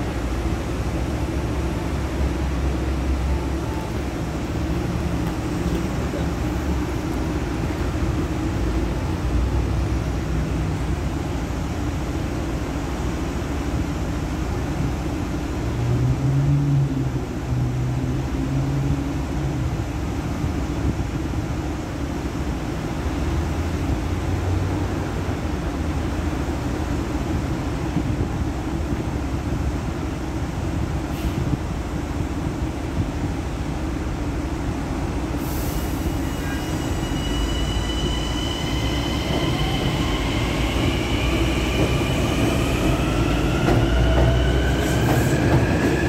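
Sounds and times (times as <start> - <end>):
train equipment humming: 0.0 - 15.7.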